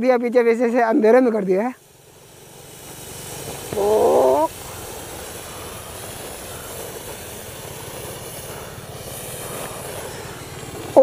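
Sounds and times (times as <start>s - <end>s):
firework hissing: 0.3s - 11.0s
warbling voice: 3.8s - 4.5s.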